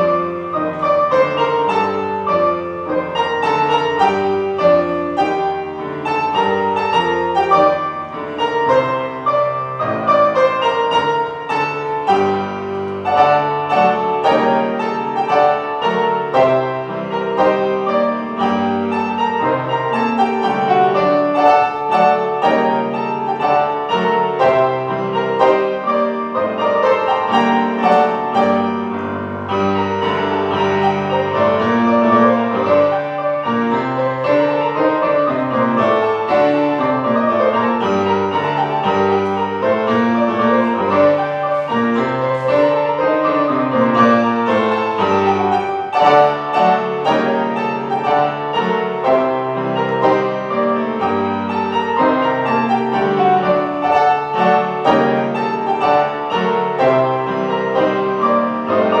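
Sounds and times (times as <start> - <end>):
piano playing: 0.0 - 59.0.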